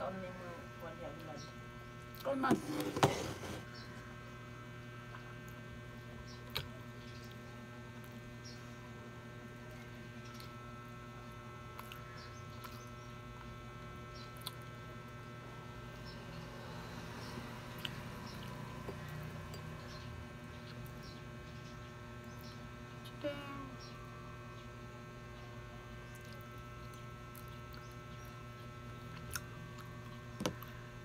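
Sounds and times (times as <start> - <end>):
electrical hum: 0.0 - 31.0.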